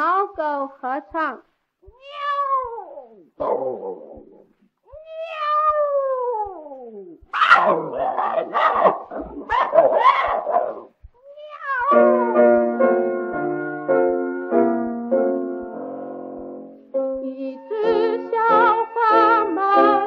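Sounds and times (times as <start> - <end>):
cat meows: 1.8 - 3.4, 4.0 - 8.6, 11.2 - 12.8
dog-like barks: 3.4 - 4.4, 7.3 - 11.0
piano: 11.8 - 20.0.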